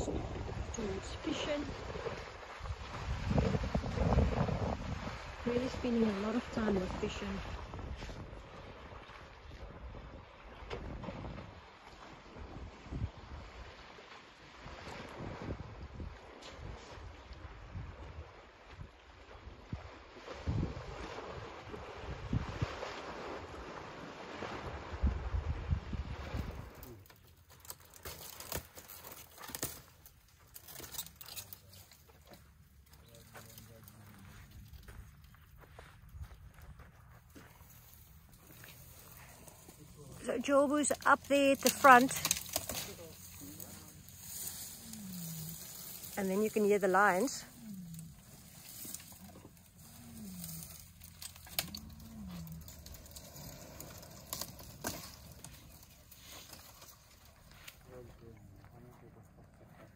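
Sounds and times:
elephant tearing leaves and twigs: 26.5 - 34.7, 37.6 - 57.9.

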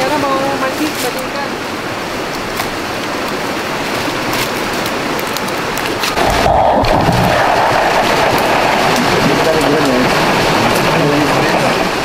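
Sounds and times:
leaves rustling underfoot: 0.0 - 6.4
river water rushing: 0.0 - 12.0
twigs snapping underfoot: 4.2 - 6.2.

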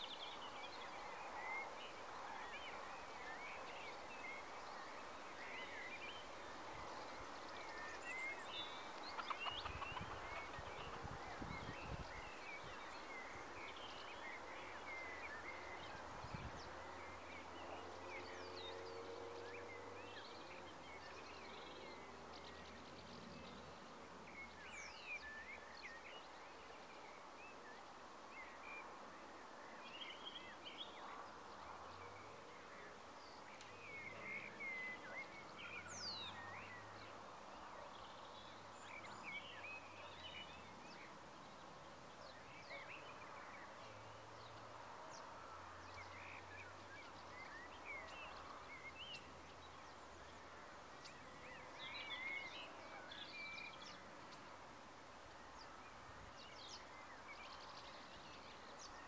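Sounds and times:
bird chirps: 2.6 - 23.5.

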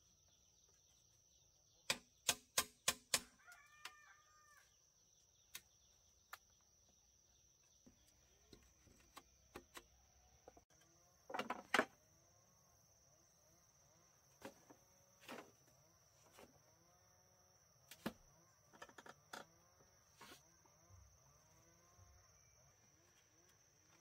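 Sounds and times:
high insect drone: 10.0 - 24.0
bamboo poles knocking: 11.3 - 11.9.

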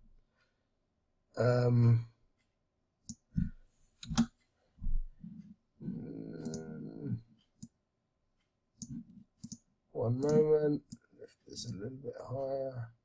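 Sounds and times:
low steady hum: 0.0 - 13.0
computer mouse clicking: 3.1 - 4.4, 6.4 - 6.8, 8.8 - 11.0.

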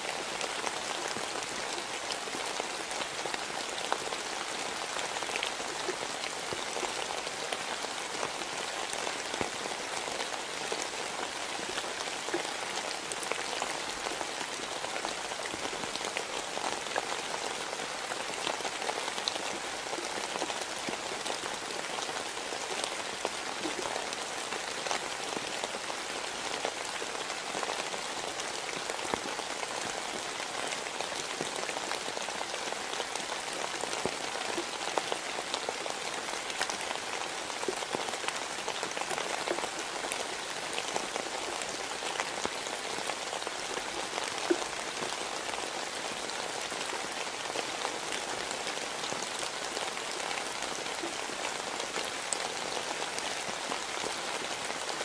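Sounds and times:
steady rain hissing: 0.0 - 55.0.

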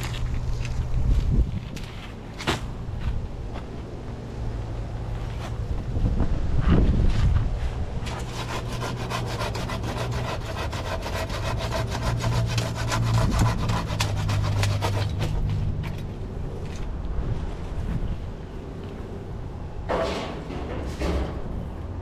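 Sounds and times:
low engine hum: 0.0 - 9.2, 11.9 - 22.0
wood scraping and rubbing: 6.7 - 17.0.

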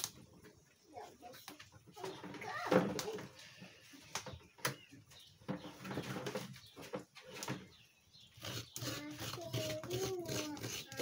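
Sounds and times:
knife scraping coconut: 8.3 - 11.0.

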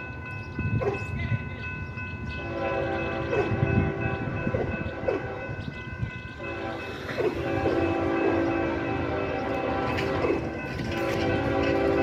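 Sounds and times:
crossing signal bell ringing: 0.0 - 12.0
low train rumble: 0.0 - 12.0
locomotive horn blast: 2.4 - 5.7, 6.4 - 12.0.

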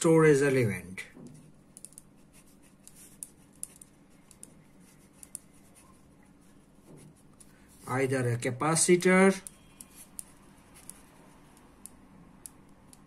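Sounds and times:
pen scratching on paper: 2.1 - 7.3.

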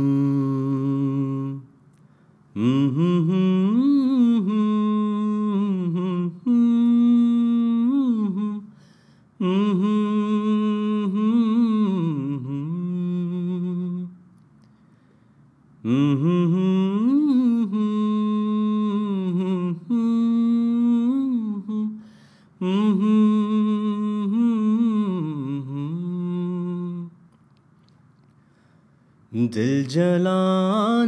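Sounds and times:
man humming melody: 0.0 - 1.7, 2.6 - 8.8, 9.4 - 14.2, 15.8 - 22.0, 22.6 - 27.2.

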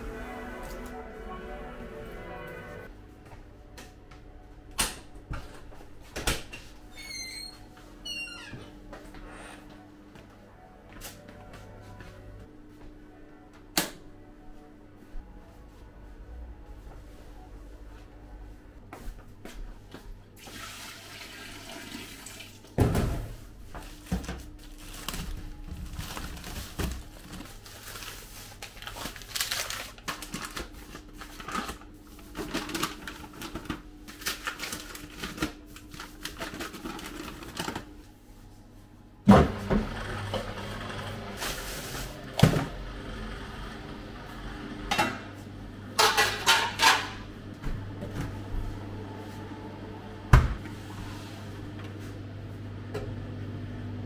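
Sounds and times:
pots and utensils clattering: 46.0 - 47.3.

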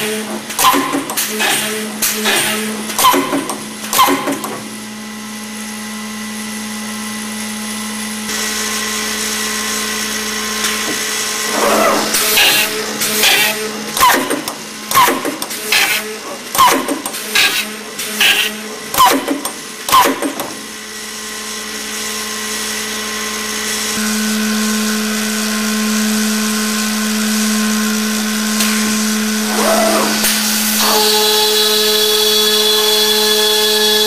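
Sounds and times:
sharp mechanical clacks: 0.0 - 4.7, 11.7 - 20.6
steady motor hum: 0.0 - 34.0
high steady spindle tone: 30.7 - 34.0.

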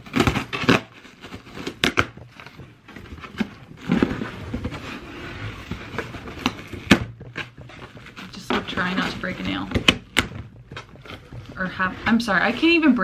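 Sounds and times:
cardboard box tearing open: 0.0 - 10.3.

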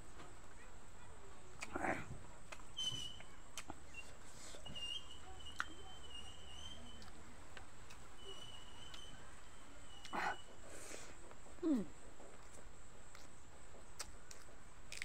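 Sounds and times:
person chewing: 11.7 - 15.0.

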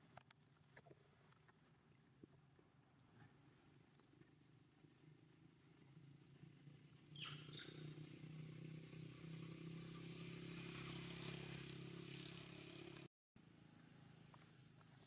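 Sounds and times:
vehicle engine hum: 3.4 - 15.0.

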